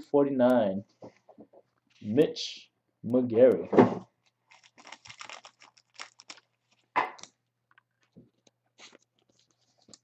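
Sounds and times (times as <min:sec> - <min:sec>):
packaging crackling and rustling: 0:04.2 - 0:10.0.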